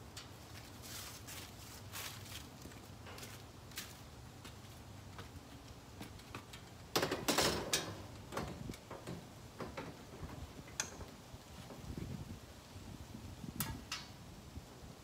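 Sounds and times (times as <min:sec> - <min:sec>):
metal basket clanking on roof bars: 0:07.0 - 0:10.1.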